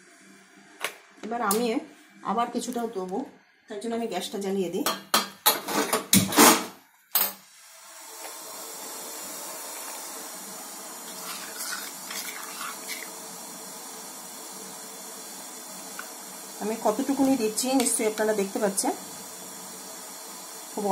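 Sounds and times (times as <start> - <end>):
gas flame hissing: 0.0 - 20.9.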